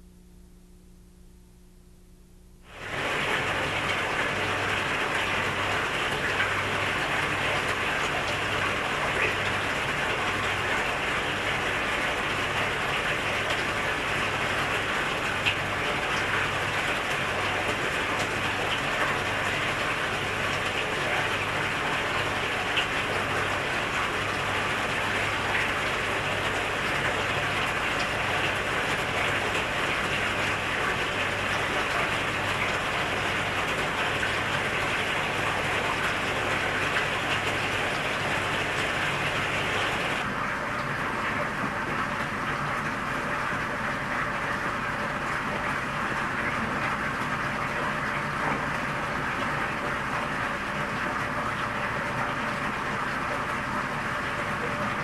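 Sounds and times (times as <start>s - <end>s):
faint low throb: 0.0s - 2.6s.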